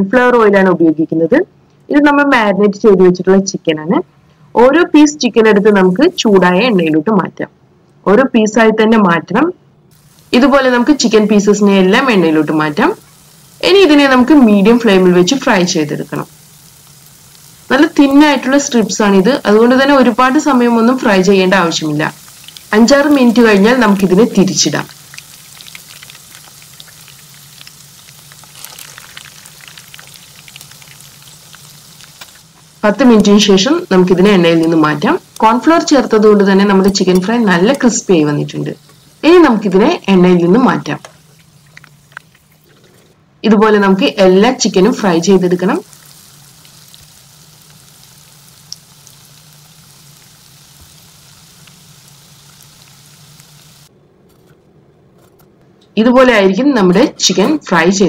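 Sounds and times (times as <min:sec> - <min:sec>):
chicken deep-frying in hot oil: 0:09.9 - 0:43.0, 0:43.6 - 0:53.9.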